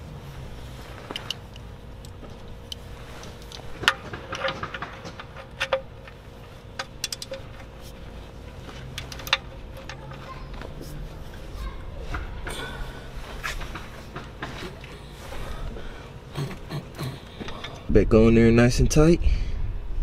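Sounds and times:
socket wrench clicking on metal: 0:06.8 - 0:07.5.

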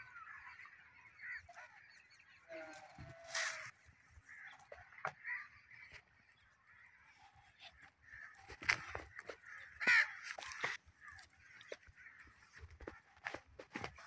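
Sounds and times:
knocks and scuffs: 0:12.4 - 0:14.0.

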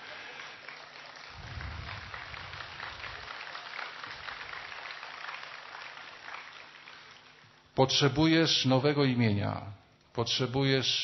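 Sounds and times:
audience applauding: 0:00.0 - 0:07.6
low rumble: 0:01.3 - 0:03.3.

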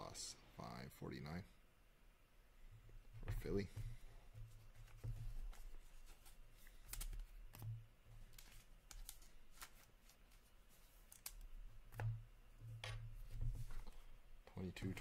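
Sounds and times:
cards clicking and rustling: 0:04.8 - 0:07.6, 0:08.2 - 0:12.1.

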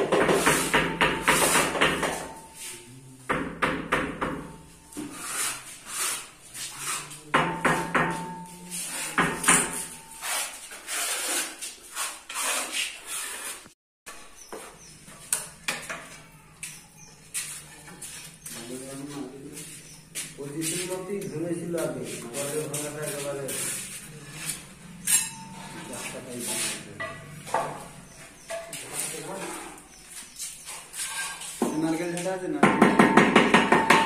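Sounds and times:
trowel spreading mortar: 0:00.1 - 0:01.8, 0:05.0 - 0:07.3, 0:08.6 - 0:13.8, 0:21.8 - 0:26.9, 0:28.8 - 0:31.6.

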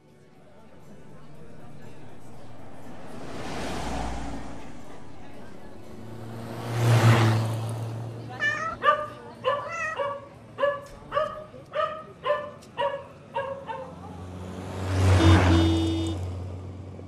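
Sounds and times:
vehicle rushing past: 0:00.0 - 0:08.6, 0:14.0 - 0:16.9
dog barking: 0:08.5 - 0:14.2.

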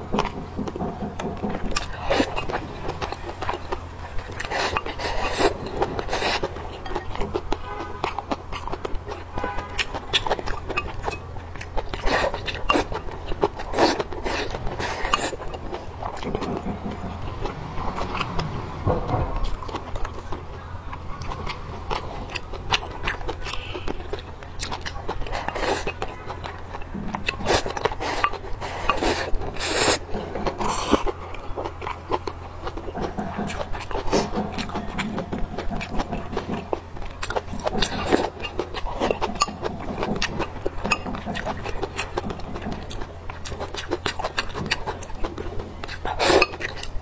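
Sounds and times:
wet chewing and mouth smacks: 0:00.0 - 0:47.0
slurping noodles: 0:04.2 - 0:06.6, 0:11.9 - 0:16.2, 0:27.2 - 0:31.2, 0:45.9 - 0:47.0.

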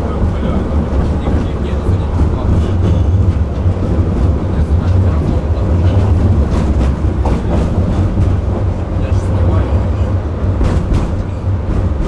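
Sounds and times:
tram wheels rumbling on rails: 0:00.0 - 0:12.0.

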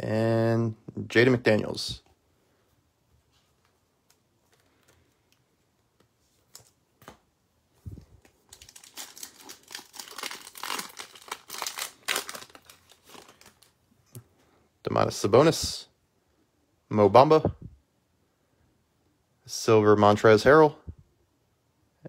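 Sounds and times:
foil card pack crinkling: 0:08.2 - 0:13.8.

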